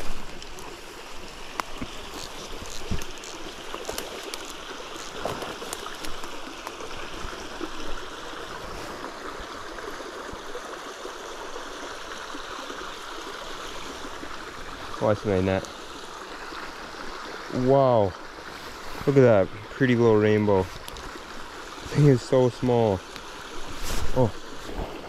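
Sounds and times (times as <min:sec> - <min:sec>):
creek running: 0:00.0 - 0:25.0
handling rustles and taps: 0:01.5 - 0:06.8.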